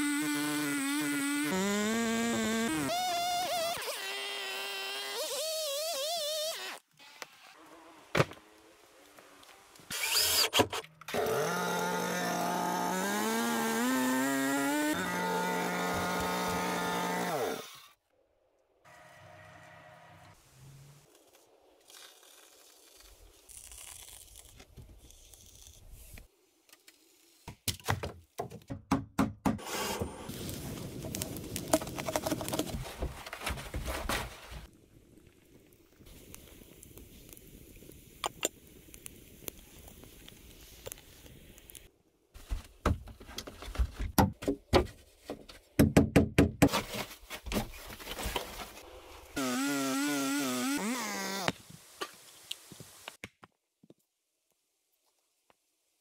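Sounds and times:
tools knocking and scraping wood: 31.7s - 34.4s, 42.4s - 48.7s.

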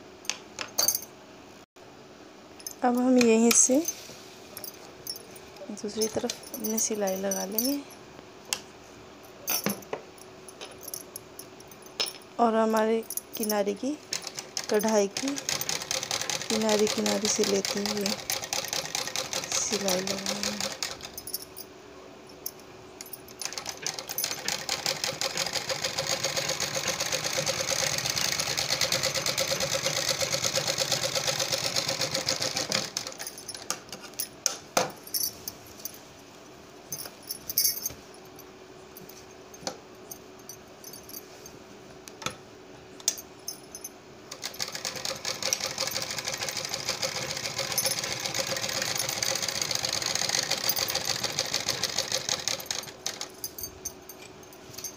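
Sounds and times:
sewing machine stitching: 14.1s - 21.1s, 23.4s - 33.2s, 44.3s - 53.2s.

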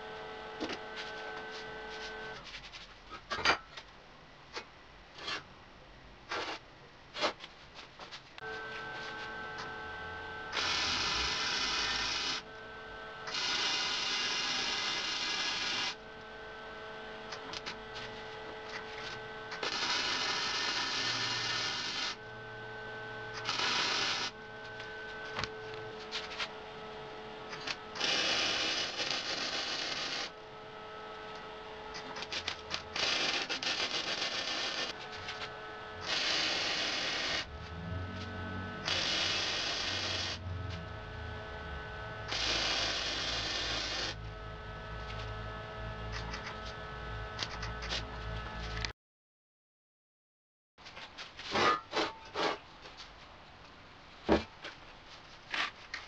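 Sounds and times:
welder humming: 0.0s - 2.4s, 8.4s - 48.9s
welding arc noise: 8.4s - 26.7s, 27.4s - 48.9s.

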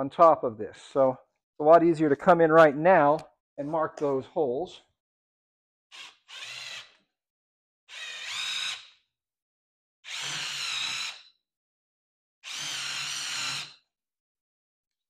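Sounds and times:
cordless drill motor whine: 6.0s - 7.0s, 7.9s - 9.0s, 10.1s - 11.3s, 12.4s - 13.8s.

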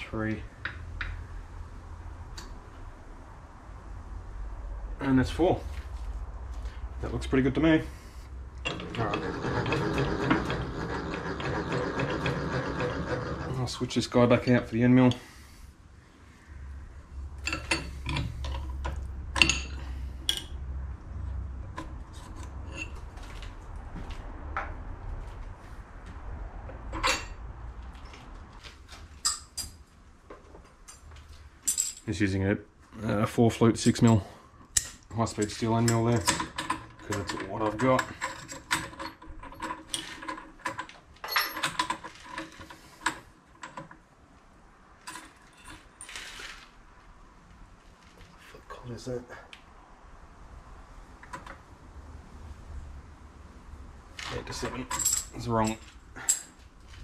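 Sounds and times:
spanner clinking on metal: 17.4s - 20.6s, 34.8s - 43.9s, 54.5s - 56.6s.

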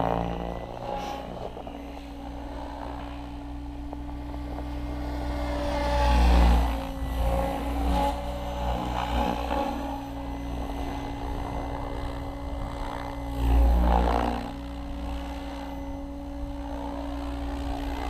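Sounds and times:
model helicopter rotor whirring: 0.0s - 18.0s.

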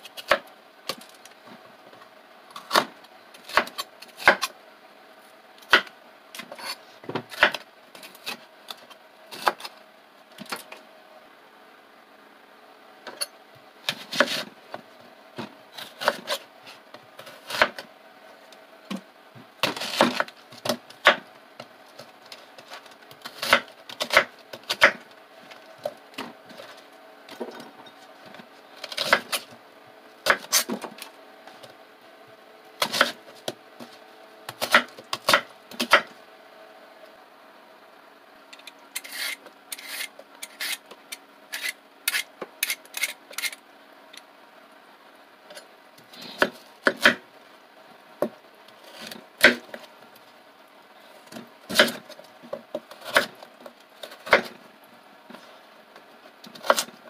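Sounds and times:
peeler scraping carrot: 6.4s - 9.8s, 30.3s - 30.8s, 38.6s - 40.9s, 41.5s - 43.6s.

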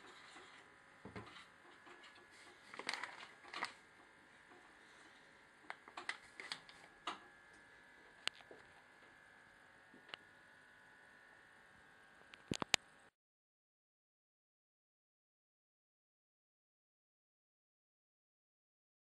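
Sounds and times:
faint steady hum: 0.0s - 13.1s.

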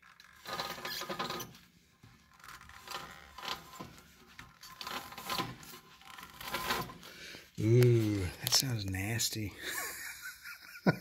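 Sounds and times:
wheel bearing grinding: 0.1s - 1.6s, 2.2s - 7.1s.

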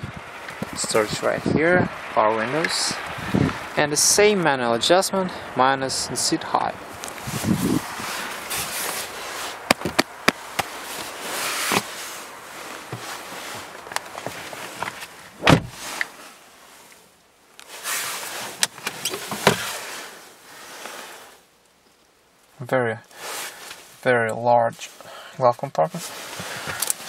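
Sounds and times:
rustling: 6.9s - 25.0s, 25.8s - 27.0s
glove compartment opening: 9.6s - 12.0s, 12.8s - 16.1s, 18.5s - 19.7s
car interior fittings clicking: 9.7s - 10.7s, 13.8s - 15.7s.

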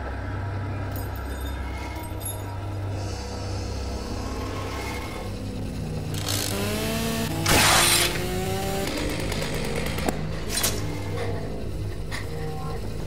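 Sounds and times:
steady low hum: 0.0s - 13.0s
chainsaw revving: 6.1s - 10.3s.

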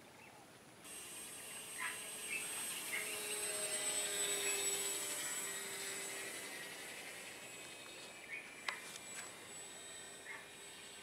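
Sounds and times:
electric motor whine: 0.8s - 11.0s
bird chirps: 7.8s - 8.9s, 10.2s - 10.6s.

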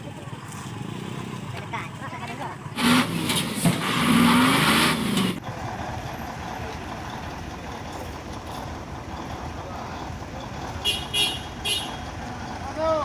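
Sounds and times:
loud hiss from truck wheels: 2.8s - 5.4s.

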